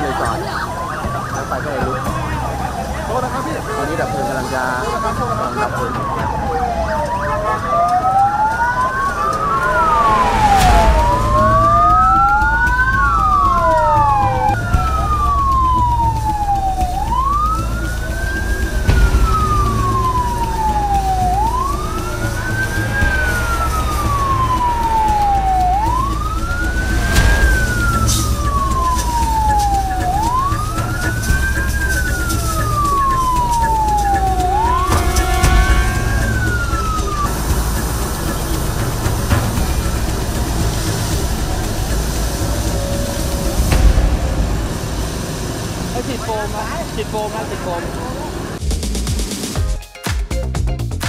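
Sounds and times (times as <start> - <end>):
emergency sirens wailing: 0.0 - 48.6
low engine rumble: 0.0 - 49.0.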